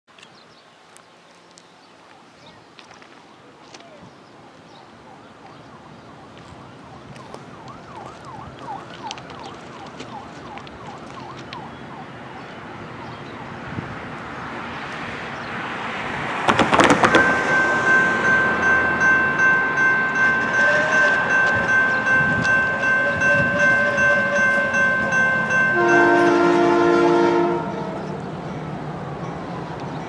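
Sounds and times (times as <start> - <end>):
freight train rumble: 12.6 - 30.0
crossing bell ringing: 16.5 - 28.8.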